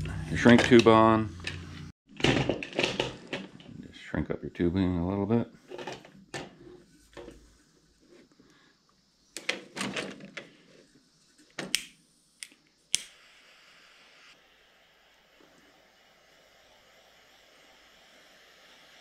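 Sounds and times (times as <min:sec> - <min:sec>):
lighter clicking: 0:11.7 - 0:13.3.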